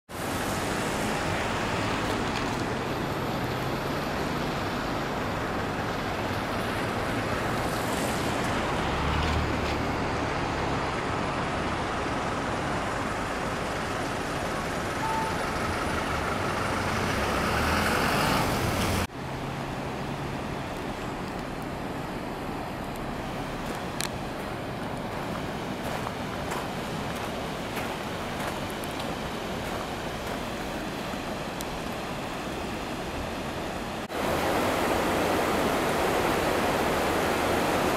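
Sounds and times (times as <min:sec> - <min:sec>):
road traffic rumble: 0:00.1 - 0:37.9
steady rushing noise: 0:18.4 - 0:37.9.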